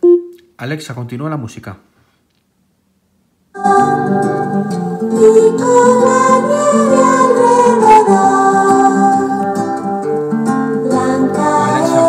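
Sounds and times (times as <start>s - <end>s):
singing over plucked strings: 3.6s - 9.8s, 10.8s - 12.0s.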